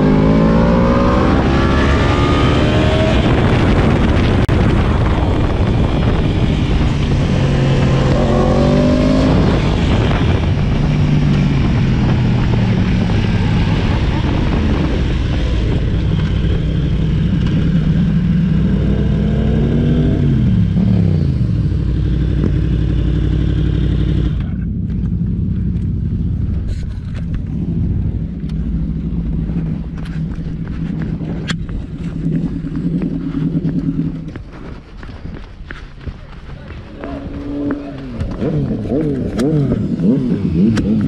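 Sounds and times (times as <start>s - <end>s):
motorcycle engine: 0.0s - 41.0s
wind noise: 0.0s - 41.0s.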